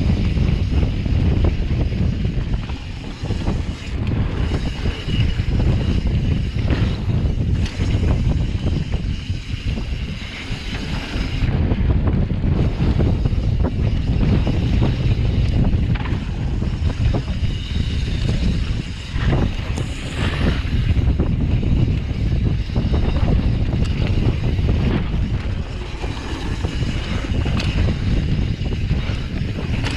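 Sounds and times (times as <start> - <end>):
bike clicks and rattles: 0.0 - 29.9
wind buffeting microphone: 0.0 - 29.9.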